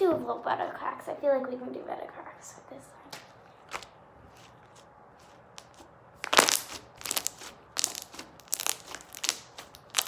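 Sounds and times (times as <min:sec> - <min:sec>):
slime crackling pops: 0:06.2 - 0:10.0.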